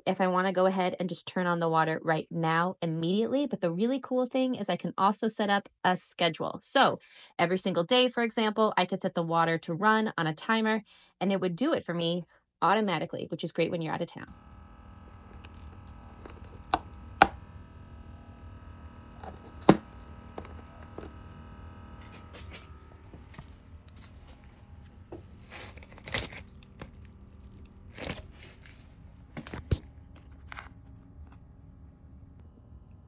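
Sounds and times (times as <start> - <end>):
small pump humming: 14.3 - 33.0.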